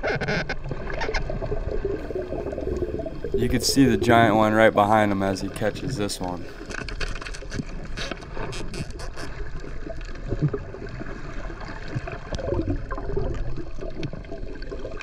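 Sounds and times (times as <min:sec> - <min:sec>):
muffled underwater gurgling: 0:00.0 - 0:06.7.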